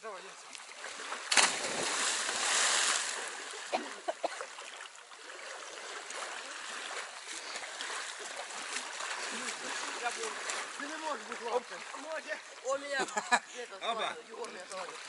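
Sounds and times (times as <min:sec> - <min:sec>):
water sloshing and lapping: 0:00.2 - 0:13.1, 0:14.2 - 0:15.0
loud splash into water: 0:01.3 - 0:03.2.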